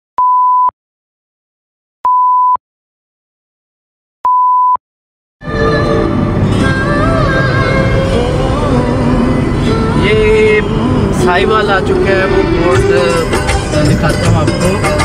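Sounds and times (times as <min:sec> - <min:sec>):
background music: 0:05.4 - 0:15.0.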